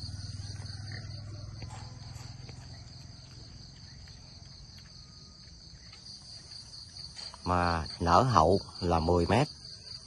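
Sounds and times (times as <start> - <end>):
low hum: 0.0 - 6.0
insects chirring: 0.0 - 10.0.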